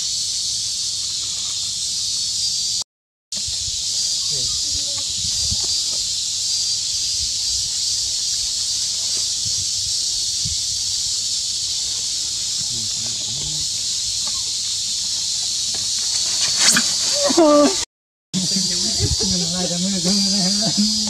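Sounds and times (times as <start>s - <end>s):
insect chorus: 0.0s - 2.8s, 3.4s - 17.8s, 18.4s - 21.0s
monkey rustling in dry leaves: 3.8s - 17.8s.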